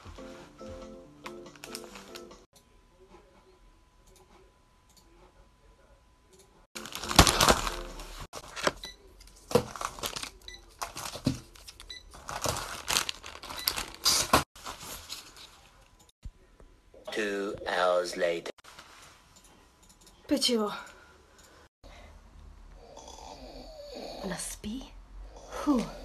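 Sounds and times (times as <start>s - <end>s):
plastic crinkling and rustling: 6.8s - 15.9s.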